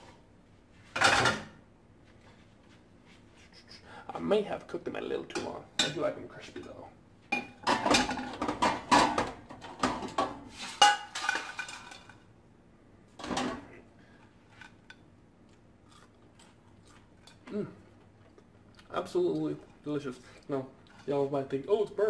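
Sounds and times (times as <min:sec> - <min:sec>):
fries clattering onto a plate: 0:07.3 - 0:12.2.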